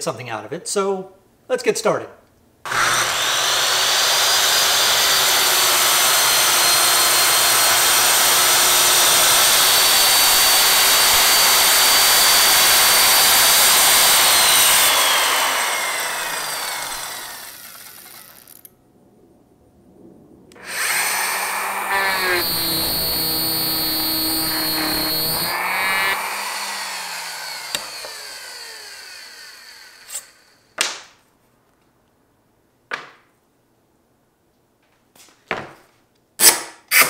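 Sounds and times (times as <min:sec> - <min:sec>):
circular saw cutting board: 0:02.7 - 0:18.7, 0:20.6 - 0:30.7.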